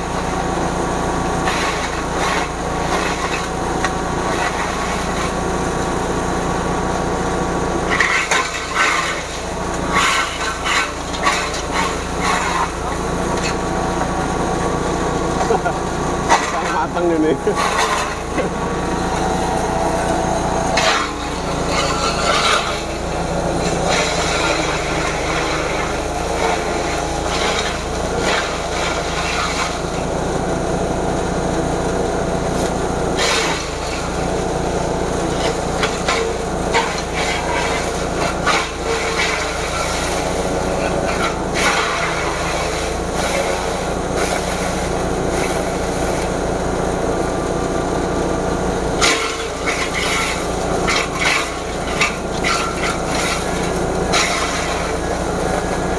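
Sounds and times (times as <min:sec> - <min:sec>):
grass chopper machine running: 0:00.0 - 0:55.9
stalks crackling through blades: 0:07.9 - 0:30.1, 0:49.0 - 0:55.9.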